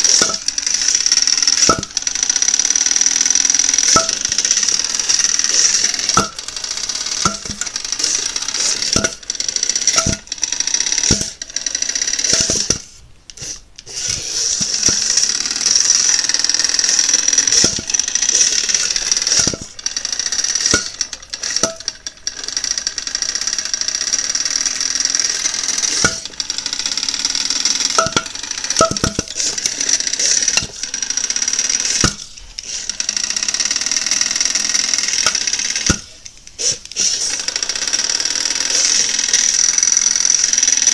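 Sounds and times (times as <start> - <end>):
blade knocking on styrofoam: 0.2 - 0.5, 1.6 - 2.0, 9.9 - 10.3, 11.1 - 11.4, 27.9 - 29.6.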